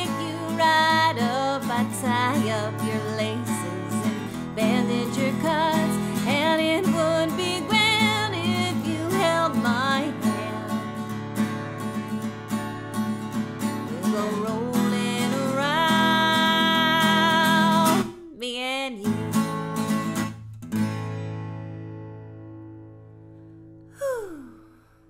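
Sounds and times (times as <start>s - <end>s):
woman singing: 0.0s - 11.0s, 13.8s - 19.6s
strummed acoustic guitar: 0.0s - 18.3s, 19.0s - 23.7s.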